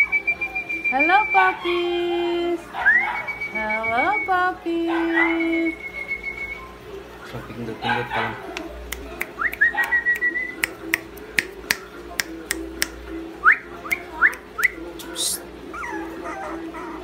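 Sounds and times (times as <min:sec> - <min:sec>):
held whistle: 0:05.7 - 0:06.7.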